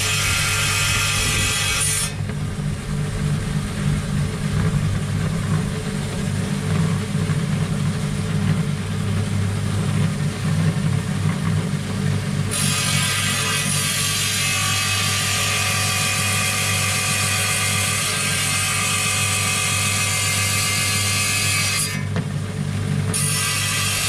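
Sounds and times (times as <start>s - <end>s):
blade grinding stone: 0.0s - 2.2s
saw motor humming: 0.0s - 6.7s, 23.1s - 24.0s.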